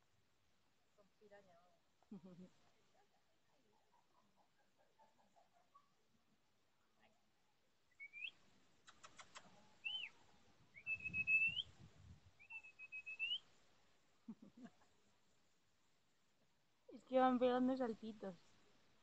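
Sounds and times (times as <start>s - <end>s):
quick clicks: 8.8s - 9.6s.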